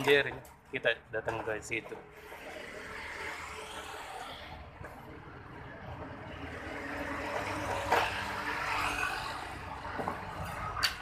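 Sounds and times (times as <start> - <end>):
motor vehicle rumble: 0.0 - 11.0.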